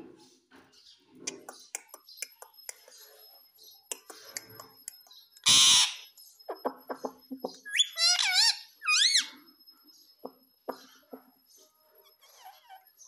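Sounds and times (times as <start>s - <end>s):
parakeet clicking chatter: 1.3s - 3.0s, 3.9s - 9.3s
parakeet squawk: 5.4s - 6.1s, 7.6s - 9.3s
parakeet wavering whistles: 7.6s - 9.4s.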